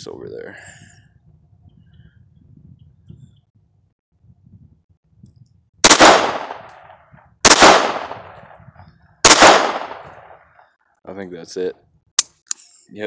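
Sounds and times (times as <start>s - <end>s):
pistol shots: 5.8s - 8.4s, 9.2s - 10.4s.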